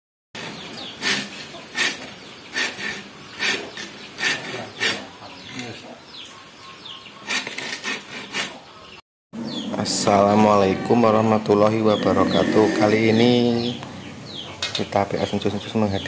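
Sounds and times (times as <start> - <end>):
metal file rasping on saw teeth: 0.4 - 5.2.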